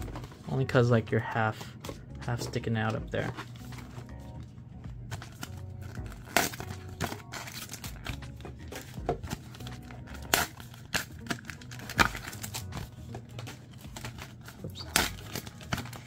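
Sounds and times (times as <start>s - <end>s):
foil packs crinkling: 5.1s - 16.0s.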